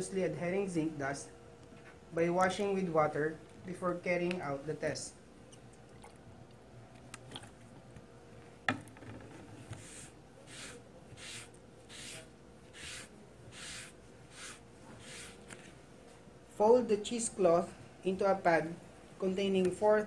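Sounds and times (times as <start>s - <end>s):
wet cloth wiping panel: 9.7s - 15.7s.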